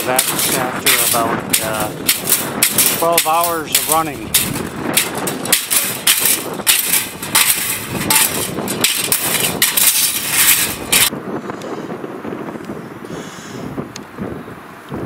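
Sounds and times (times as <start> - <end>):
windmill rotor clattering and knocking: 0.0 - 11.2
wind noise on microphone: 0.0 - 15.0.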